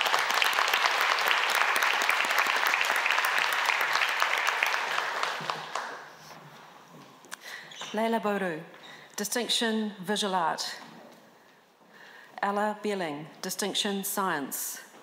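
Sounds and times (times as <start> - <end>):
audience applauding: 0.0 - 6.4.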